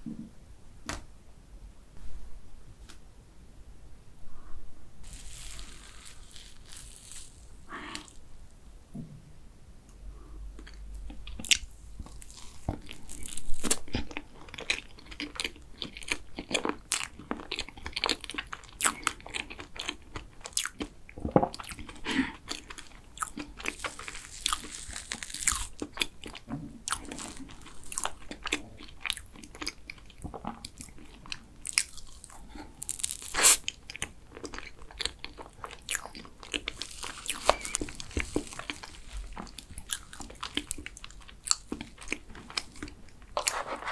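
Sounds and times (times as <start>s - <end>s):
chewing and crunching cake: 10.6s - 43.9s
spoon scraping plastic cup: 43.4s - 43.9s.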